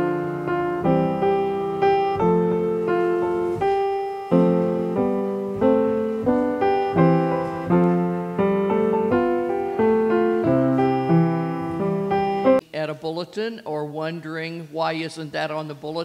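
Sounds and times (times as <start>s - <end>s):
piano playing slow chords: 0.0s - 12.6s.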